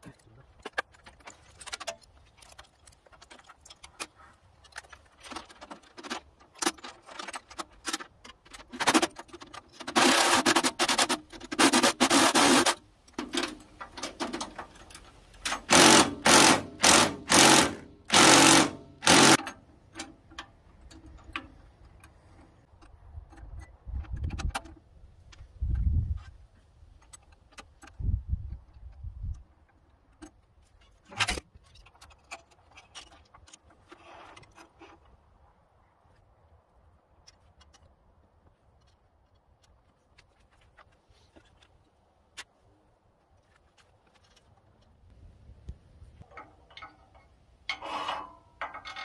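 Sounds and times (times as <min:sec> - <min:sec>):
wire cable rasping strokes: 0:47.7 - 0:48.5.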